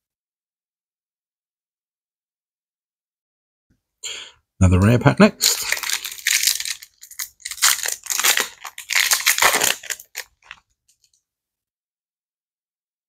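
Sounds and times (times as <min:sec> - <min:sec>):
foil wrapper crinkling: 0:05.4 - 0:11.2.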